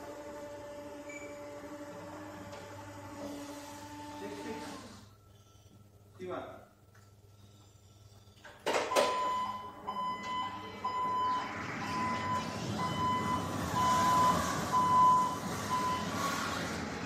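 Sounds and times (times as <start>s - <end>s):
truck driving: 9.2s - 17.0s.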